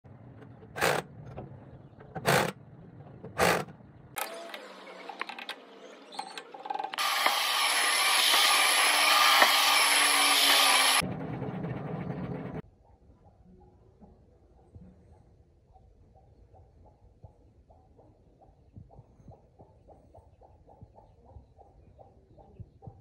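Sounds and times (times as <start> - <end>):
electric impact wrench bursts: 7.0 - 11.0
loud steady noise: 7.0 - 12.6.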